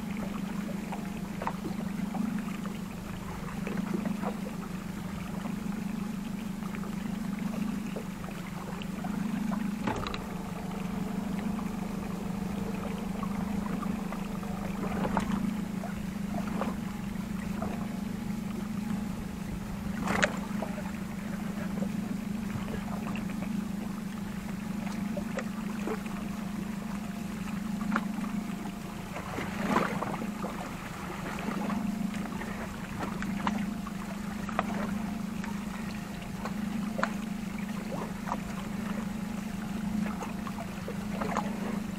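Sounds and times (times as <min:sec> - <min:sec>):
outboard motor idling: 0:00.0 - 0:41.9
sharp knocks from gear: 0:09.8 - 0:10.4, 0:20.0 - 0:20.4.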